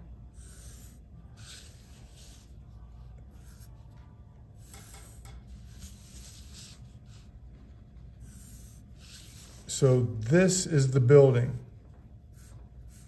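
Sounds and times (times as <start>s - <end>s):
faint steady hum: 0.0s - 13.0s
pencil scratching on paper: 0.2s - 4.0s, 4.6s - 7.4s, 8.1s - 9.9s, 12.3s - 13.0s.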